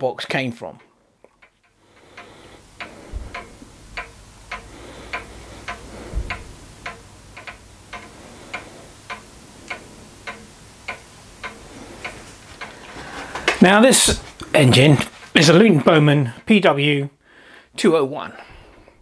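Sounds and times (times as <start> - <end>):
sharp regular ticking: 0.8 - 17.0
dull low thumps: 2.8 - 8.0.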